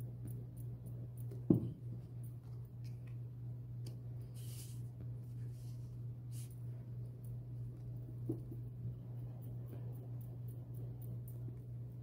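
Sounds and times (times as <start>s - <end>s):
steady low hum: 0.0s - 12.0s
glue bottle thump on table: 1.5s - 1.8s.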